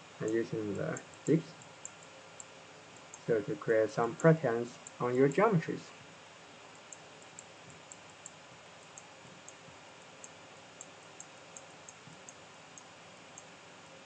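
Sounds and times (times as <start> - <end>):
computer mouse clicks: 6.7 - 9.6, 10.2 - 13.5.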